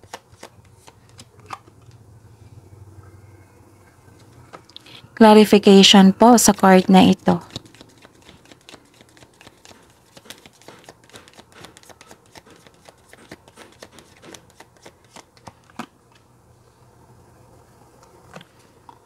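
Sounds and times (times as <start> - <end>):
cards being shuffled: 0.0 - 2.0, 7.2 - 16.3.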